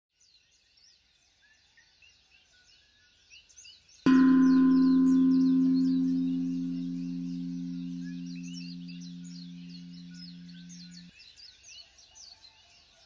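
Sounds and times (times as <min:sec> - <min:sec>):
faint birdsong chirps: 0:04.1 - 0:11.1
meditation bell ringing: 0:04.1 - 0:11.1.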